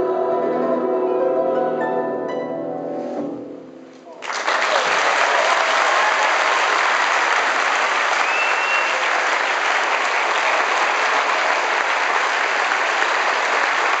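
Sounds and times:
audience applauding: 4.1s - 14.0s.

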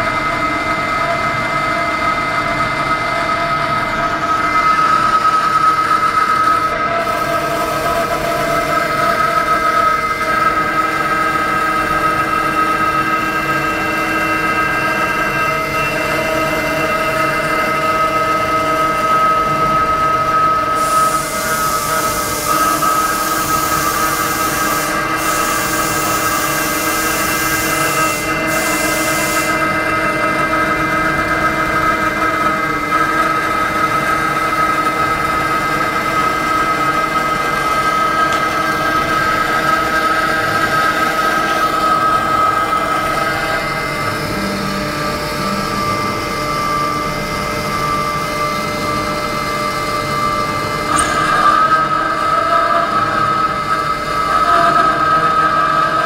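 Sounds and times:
machine spindle whine: 0.0s - 56.0s
loud high hiss: 20.8s - 29.7s.

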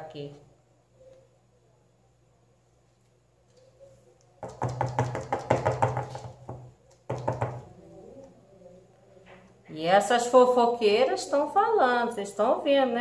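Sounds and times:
plastic tubs knocking on countertop: 4.4s - 7.7s.

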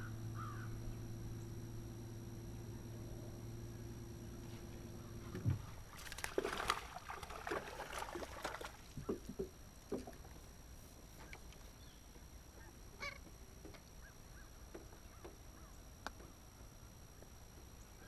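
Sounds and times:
electric trolling motor humming: 0.0s - 18.0s
knocks against boat: 5.3s - 5.7s
fish splashing at the surface: 5.9s - 9.0s.

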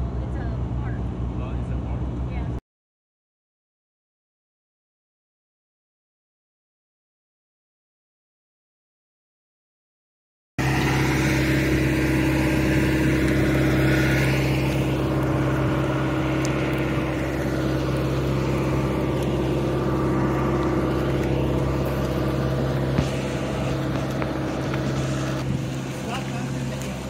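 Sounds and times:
low hum: 0.0s - 2.6s, 10.6s - 27.0s
aircraft engine drone: 10.6s - 27.0s.

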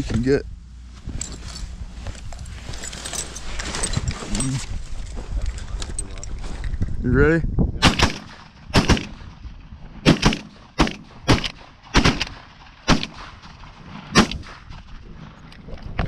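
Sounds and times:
shotgun shots: 7.8s - 9.4s, 10.0s - 14.9s.

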